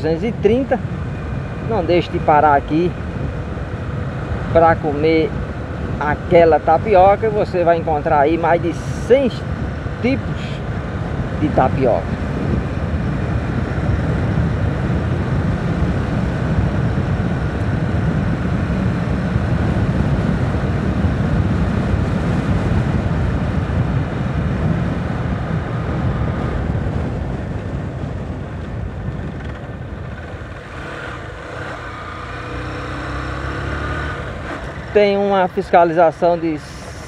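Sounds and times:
wind and road rush: 0.0 - 37.0
motorcycle engine running: 25.2 - 35.6.

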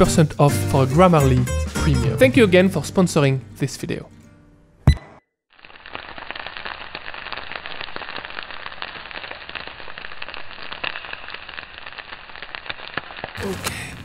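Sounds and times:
dense crackling: 5.5 - 14.0.

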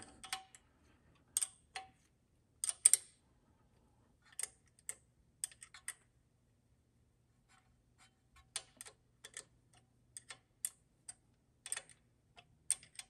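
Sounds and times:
wrench clicking on metal bolts: 2.6 - 3.1.

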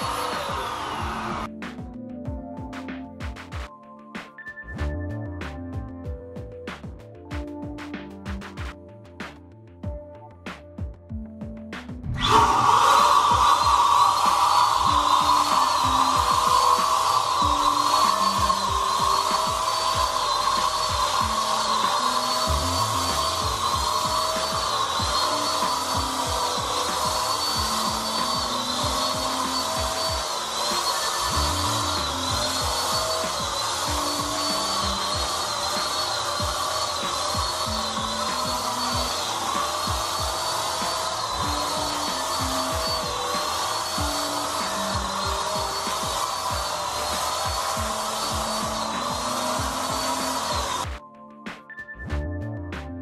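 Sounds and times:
paint spray gun motor whining: 0.0 - 1.5, 12.1 - 51.0
background music with low beat: 0.0 - 53.0.

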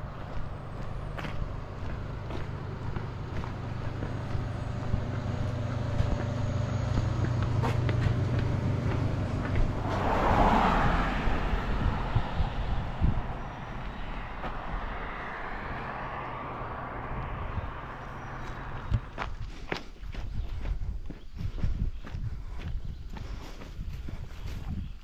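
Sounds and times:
vehicle passing by: 0.0 - 19.7
vehicle engine humming: 0.0 - 24.9.

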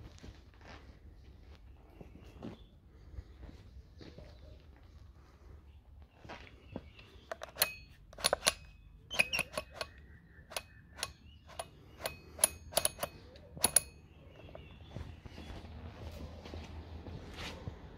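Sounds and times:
dumbbell dial clicking: 7.3 - 14.0.

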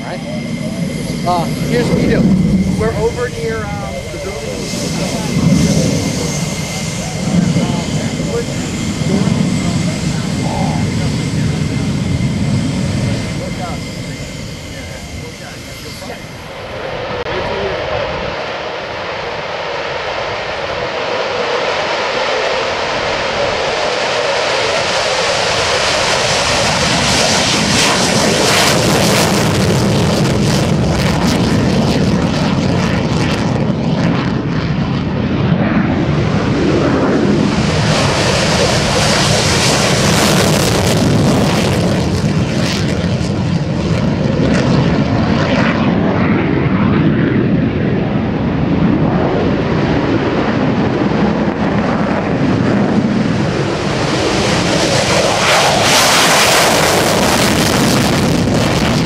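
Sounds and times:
fighter jet engine roaring: 0.0 - 59.0.

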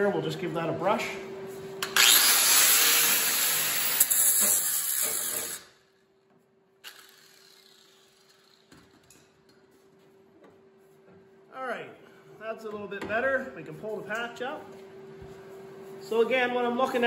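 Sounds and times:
angle grinder grinding steel: 1.8 - 5.8, 6.8 - 8.7.

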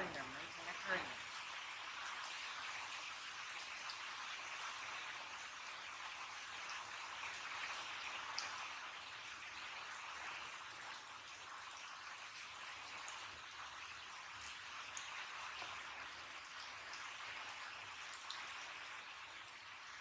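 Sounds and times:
raindrops ticking: 0.0 - 4.4
heavy rain: 0.0 - 20.0.

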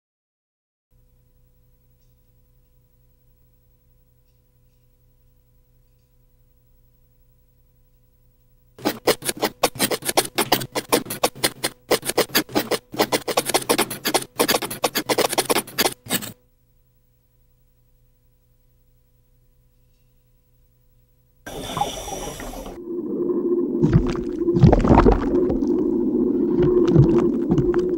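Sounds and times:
crustacean claws scratching on wood: 8.8 - 16.4.

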